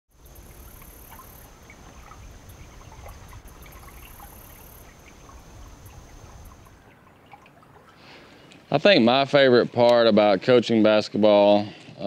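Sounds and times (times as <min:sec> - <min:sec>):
steady low rumble: 0:00.2 - 0:06.8
water lapping against boat hull: 0:00.2 - 0:08.8.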